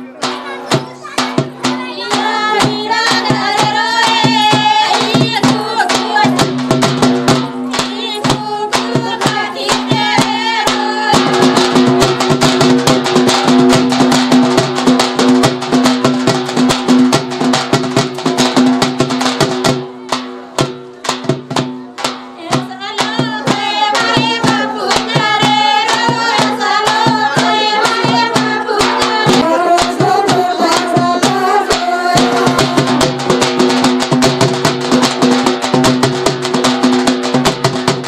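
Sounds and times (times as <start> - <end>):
jingling percussion: 0.0 - 38.0
quick drum strokes: 0.0 - 38.0
person singing: 22.4 - 33.5.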